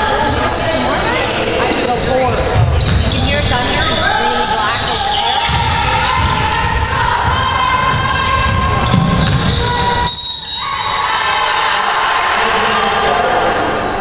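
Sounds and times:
voices in a hall: 0:00.0 - 0:14.0
players running on gym floor: 0:01.7 - 0:11.2
ball bouncing: 0:02.2 - 0:04.1, 0:05.4 - 0:10.0
referee whistle blast: 0:09.5 - 0:11.1.

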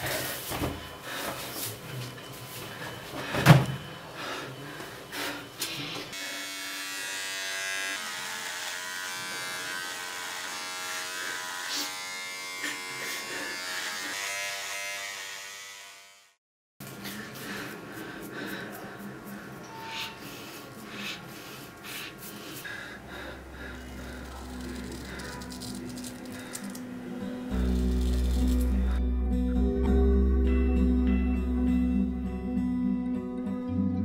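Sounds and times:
electric hair trimmer buzzing: 0:06.1 - 0:16.4, 0:23.2 - 0:29.0.

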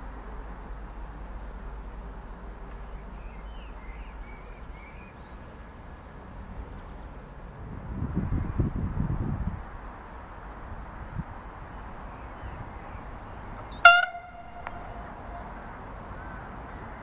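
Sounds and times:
low background rumble: 0:10.5 - 0:17.0.

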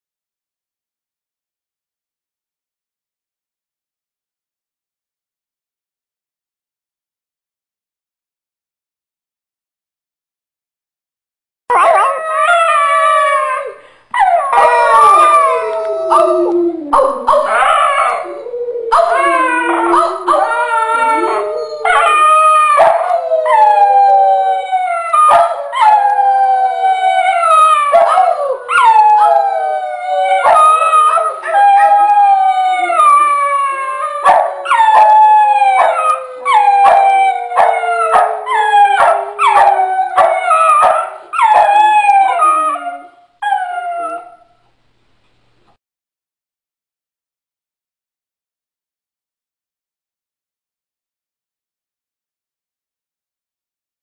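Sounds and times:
dogs howling: 0:11.7 - 0:44.4.

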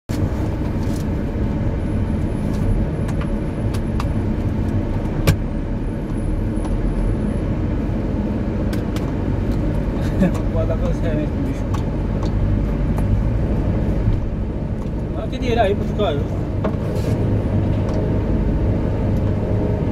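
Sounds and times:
car engine and road rumble: 0:00.1 - 0:19.9.

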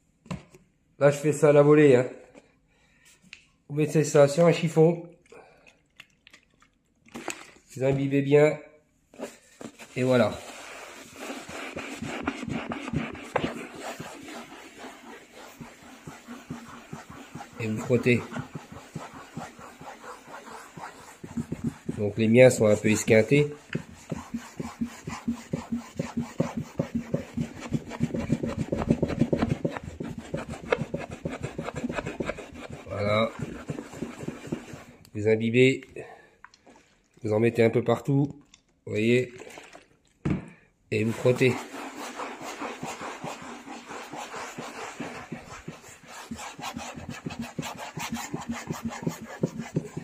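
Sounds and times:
cloth scrubbing chair seat: 0:09.8 - 0:35.0, 0:41.0 - 0:50.0.

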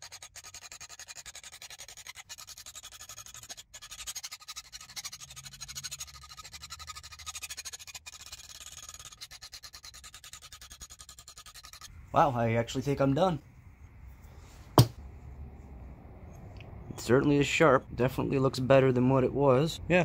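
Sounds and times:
hand file rasping on steel: 0:00.0 - 0:11.9.

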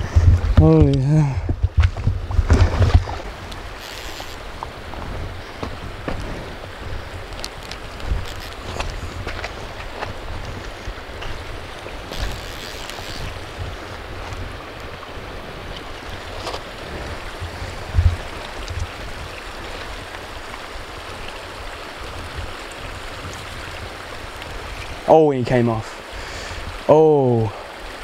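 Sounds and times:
microphone handling bumps: 0:00.0 - 0:03.3, 0:04.2 - 0:06.5
river rushing over gravel: 0:00.0 - 0:28.0.

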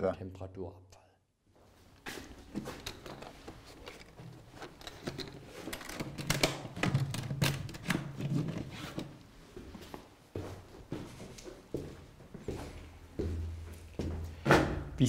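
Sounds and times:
case clicks and knocks: 0:02.8 - 0:09.1.

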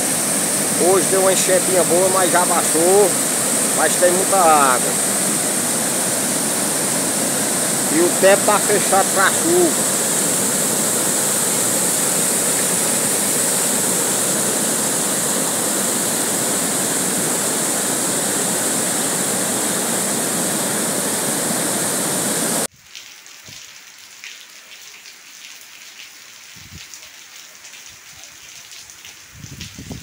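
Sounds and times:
rain: 0:00.0 - 0:19.6, 0:22.3 - 0:30.0
floodwater rushing over weir: 0:00.0 - 0:22.7.

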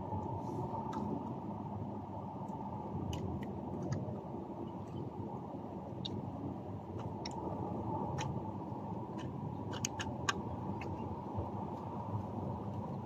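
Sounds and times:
low background rumble: 0:00.0 - 0:13.0
small clicks and taps: 0:02.4 - 0:04.1, 0:07.0 - 0:07.5, 0:08.1 - 0:08.4, 0:09.1 - 0:11.0.

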